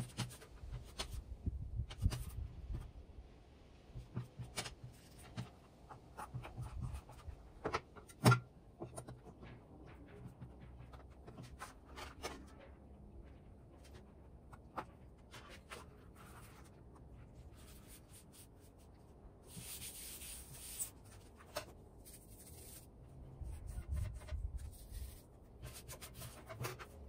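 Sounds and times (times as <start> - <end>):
foam sheets rubbing: 15.3 - 27.0.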